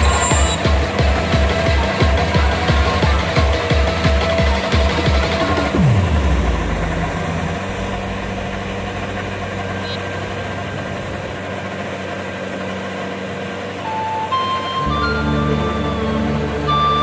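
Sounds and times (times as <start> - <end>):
music: 0.0 - 7.5, 13.8 - 17.0
combine harvester diesel engine: 0.0 - 17.0.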